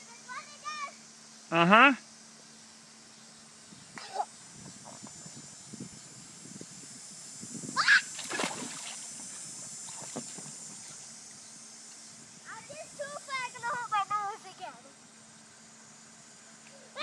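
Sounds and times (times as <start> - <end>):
child crying out: 7.8 - 8.1
splash into pool: 7.9 - 11.0
water sloshing: 8.1 - 11.1.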